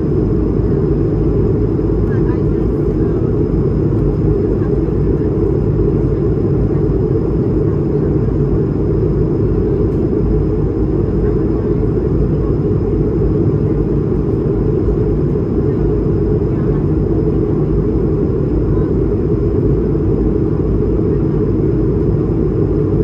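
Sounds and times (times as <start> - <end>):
aircraft cabin engine rumble: 0.0 - 23.0.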